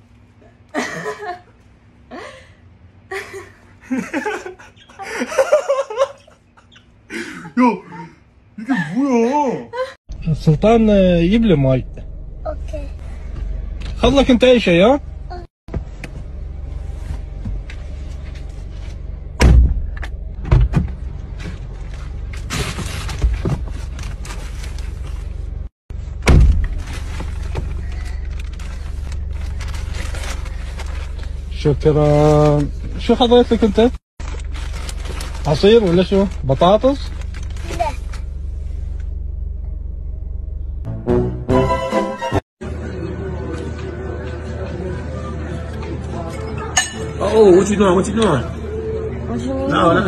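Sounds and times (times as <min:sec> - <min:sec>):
man and woman laughing: 0:00.8 - 0:01.5, 0:03.1 - 0:10.0
car humming: 0:10.1 - 0:41.2
car door thumping shut: 0:19.4 - 0:21.0, 0:26.2 - 0:26.8
plastic bag rustling: 0:26.7 - 0:32.8, 0:34.2 - 0:38.1.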